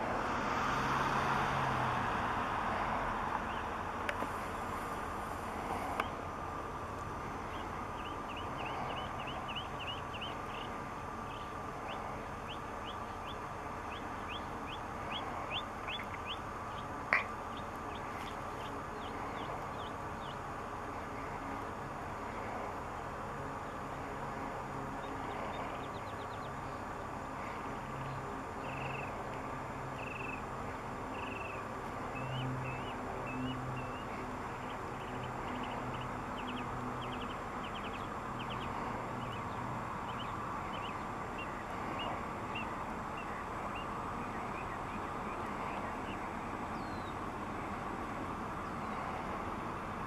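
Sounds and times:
jet engines whining: 0.0s - 50.0s
bird chirping: 7.4s - 20.4s, 28.1s - 29.2s, 29.9s - 30.4s, 31.1s - 47.2s.

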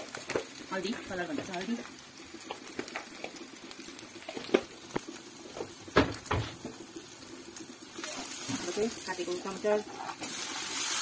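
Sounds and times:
hot oil sizzling: 0.0s - 11.0s
knocks on pan: 5.9s - 6.7s.

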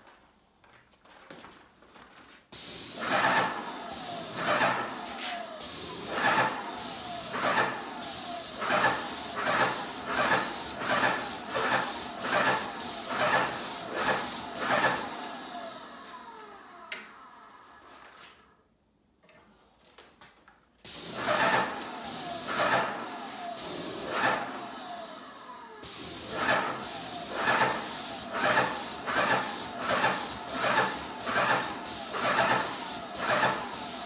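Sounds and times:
paint sprayer hissing bursts: 2.5s - 15.2s, 20.8s - 24.8s, 25.8s - 34.0s.

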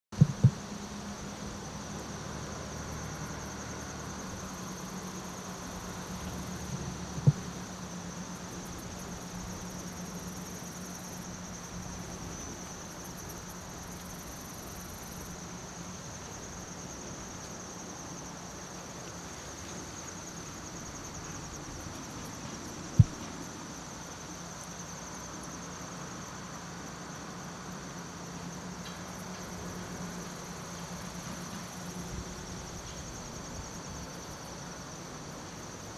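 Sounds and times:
low steady hum: 0.2s - 24.9s
insects trilling: 0.2s - 35.9s.

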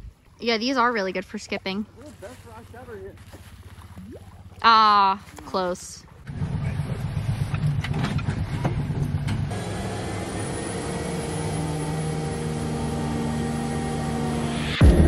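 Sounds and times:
plane engine drone: 6.3s - 15.0s.

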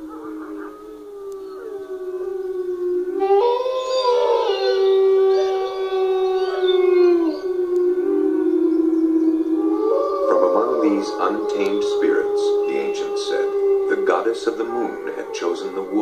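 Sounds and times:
higher wolf howls gliding in pitch: 0.0s - 16.0s
low steady wolf howl: 0.0s - 16.0s.

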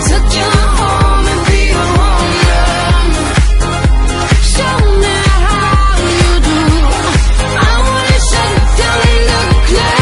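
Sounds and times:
dance-pop music: 0.0s - 10.0s
kick-drum beat: 0.1s - 10.0s.

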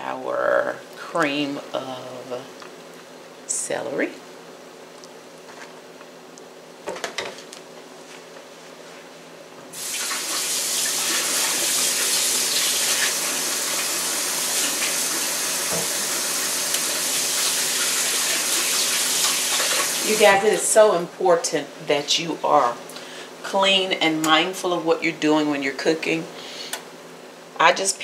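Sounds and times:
faucet running into sink: 9.8s - 20.2s.

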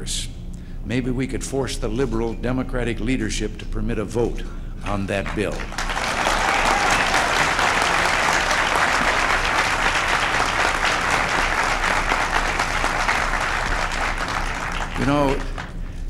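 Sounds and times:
large audience applauding: 5.2s - 16.0s.

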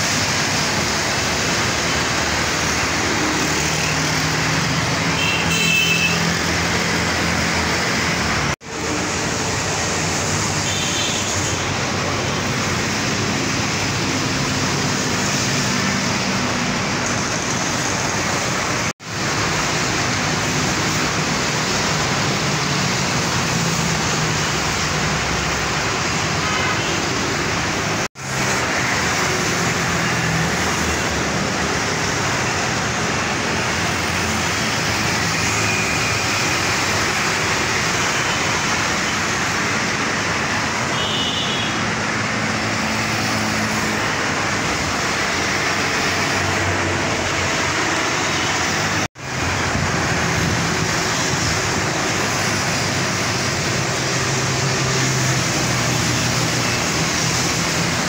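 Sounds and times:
road traffic passing: 0.0s - 58.0s.

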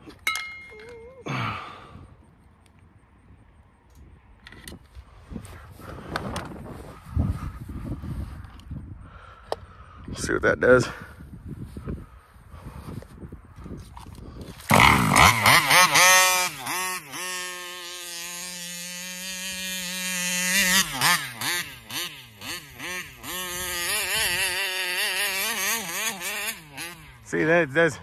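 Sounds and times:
two-stroke engine revving: 14.6s - 27.8s.

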